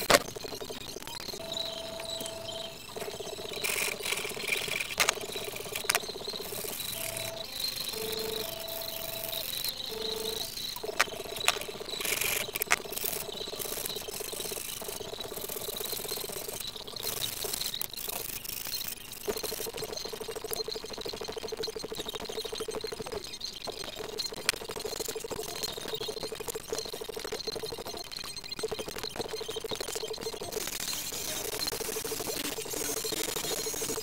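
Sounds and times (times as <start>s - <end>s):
sharp clicks: 0.0s - 20.7s
low buzzing drone: 1.3s - 12.7s.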